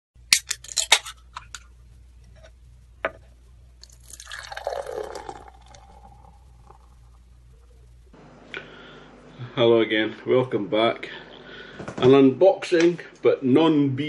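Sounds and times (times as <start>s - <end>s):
liquid pouring into vessel: 3.8s - 7.2s.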